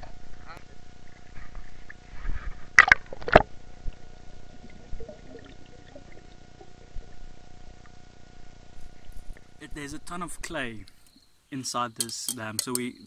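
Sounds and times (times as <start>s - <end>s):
faint water sounds: 0.0s - 13.0s
water splashes: 2.7s - 7.9s.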